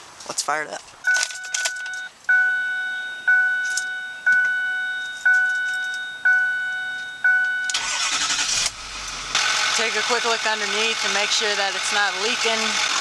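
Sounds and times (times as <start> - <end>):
door warning chime: 1.1 - 7.8
diesel engine cranking and starting: 7.7 - 13.0.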